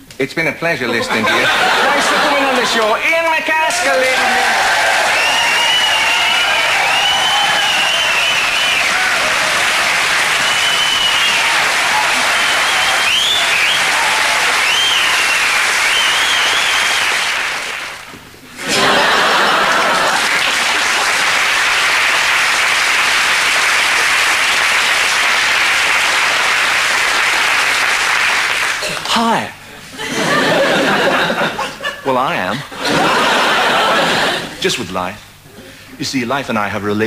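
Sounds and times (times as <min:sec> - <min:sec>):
audience cheering: 0:01.2 - 0:18.0, 0:18.6 - 0:28.7
audience applauding: 0:01.3 - 0:03.0, 0:03.6 - 0:29.2.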